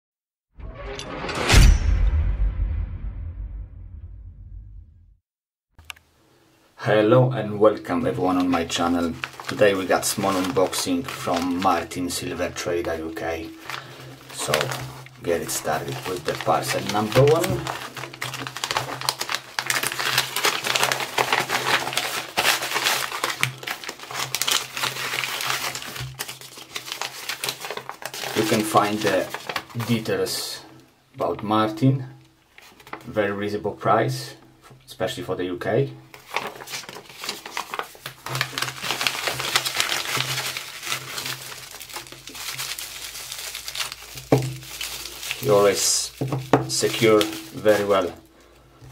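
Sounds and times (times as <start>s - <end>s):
paper envelopes crinkling and tearing: 7.9s - 30.4s, 32.5s - 33.1s, 36.1s - 48.9s.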